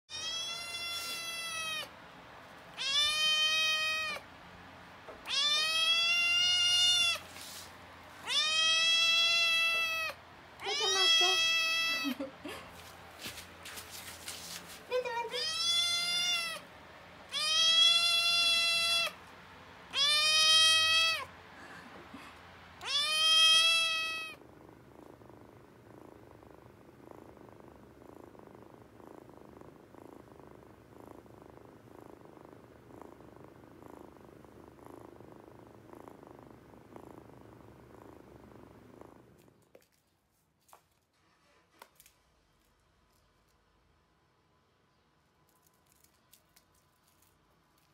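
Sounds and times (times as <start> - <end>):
kitten meowing: 0.1 - 1.9, 2.8 - 4.2, 5.2 - 7.2, 8.2 - 12.2, 15.3 - 16.6, 17.3 - 19.2, 19.9 - 21.3, 22.8 - 24.4
kitten purring: 8.2 - 12.7, 19.9 - 39.8.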